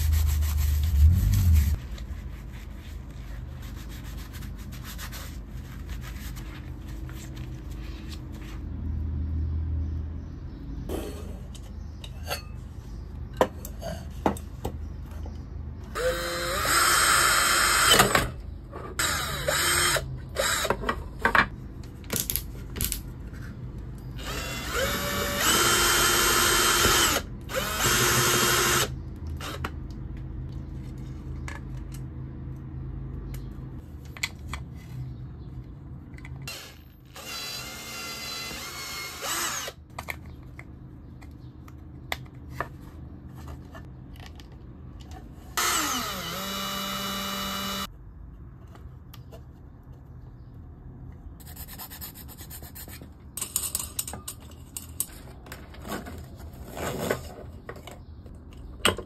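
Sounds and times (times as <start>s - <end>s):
cordless drill boring plastic: 16.0s - 18.0s, 24.2s - 29.6s, 36.5s - 39.8s, 45.6s - 47.9s
step drill cutting metal: 45.6s - 47.9s.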